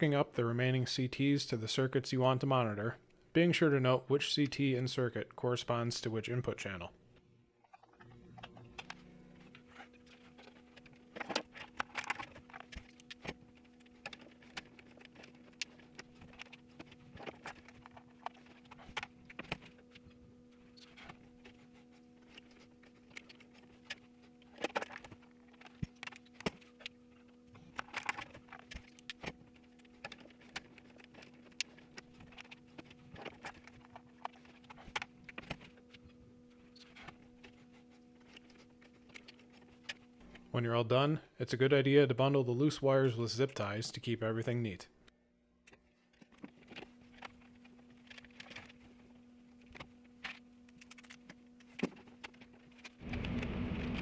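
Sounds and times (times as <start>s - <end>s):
steady low hum: 0.0s - 54.0s
wires being handled: 8.7s - 40.4s, 46.1s - 53.4s.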